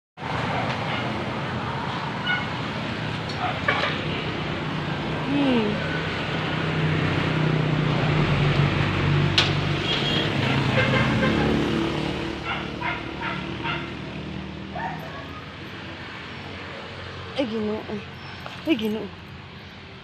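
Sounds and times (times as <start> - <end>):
dog barking: 0.6 - 1.1, 3.4 - 3.6, 12.4 - 13.9, 14.7 - 15.5.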